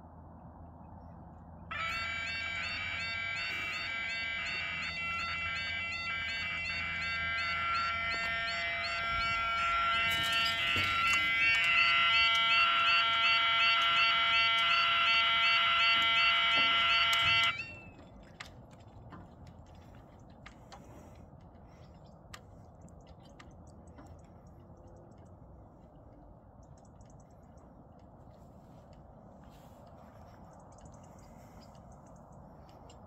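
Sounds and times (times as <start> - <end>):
level crossing alarms warbling: 1.7 - 18.3
strange alarm tone: 1.7 - 18.5.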